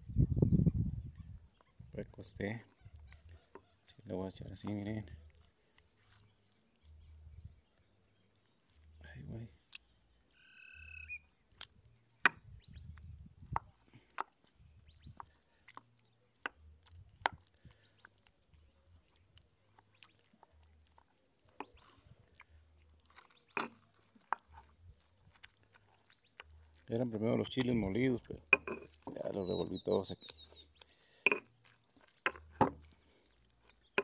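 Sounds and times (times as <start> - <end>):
stone pestle grinding in mortar: 27.6 - 29.6.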